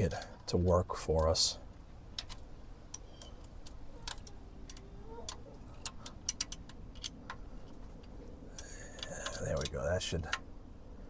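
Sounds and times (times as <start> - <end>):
ratcheting wrench clicking: 2.1 - 7.8.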